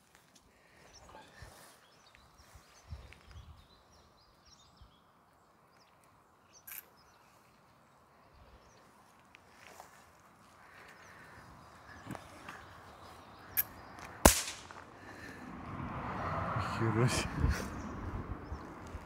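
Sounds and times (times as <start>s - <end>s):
sharp click: 14.3s - 14.8s.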